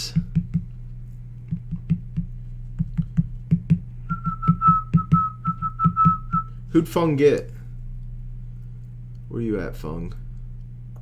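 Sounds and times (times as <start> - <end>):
low steady hum: 0.0 - 11.0
person whistling: 4.1 - 6.6.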